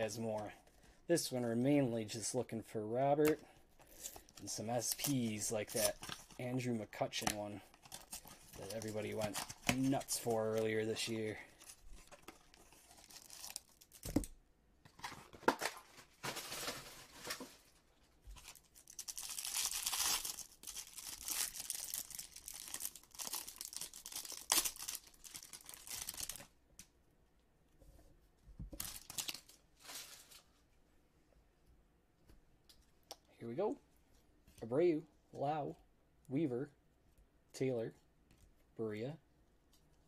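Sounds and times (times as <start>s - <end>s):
packaging tearing and crinkling: 11.6s - 14.3s, 18.4s - 26.5s, 28.8s - 30.4s.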